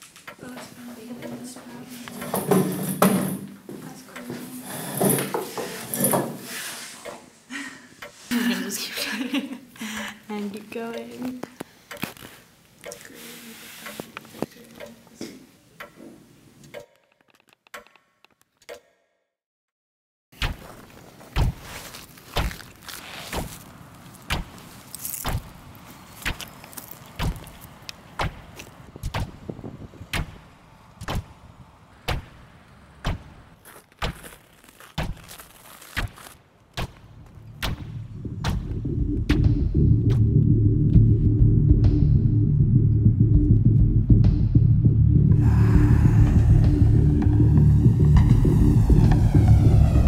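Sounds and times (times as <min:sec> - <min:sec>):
sharp thuds: 0:20.4 - 0:24.6
low rumbling drone: 0:37.2 - 0:50.0.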